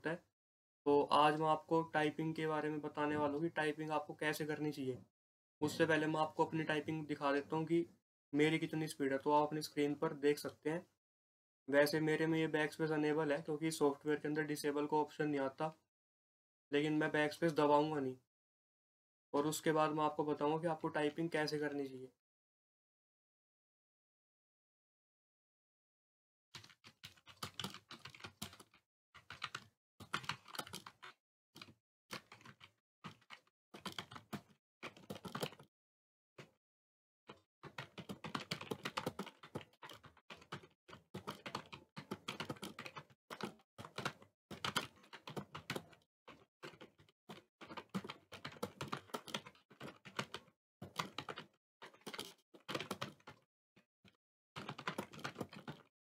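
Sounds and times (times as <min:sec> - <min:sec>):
keyboard typing: 0:26.6 - 0:35.6, 0:37.3 - 0:53.4, 0:54.6 - 0:55.9.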